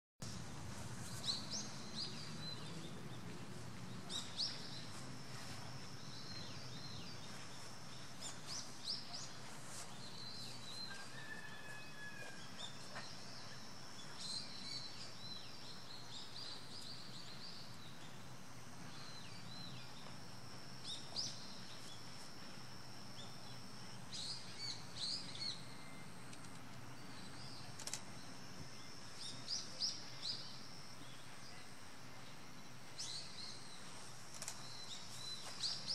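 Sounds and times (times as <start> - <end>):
small birds chirping: 33.0 - 35.9.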